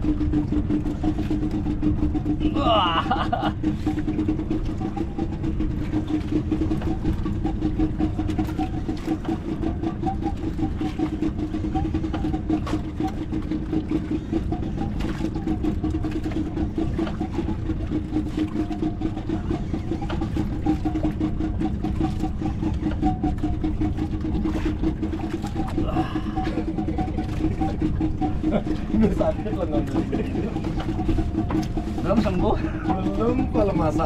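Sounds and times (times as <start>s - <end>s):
boat engine idling: 0.0s - 34.0s.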